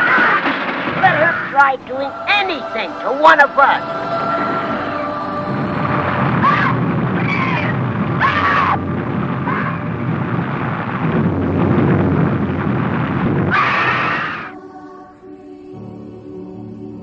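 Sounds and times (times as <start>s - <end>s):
storm rain and wind: 0.0s - 14.6s
woman screaming: 6.4s - 8.8s.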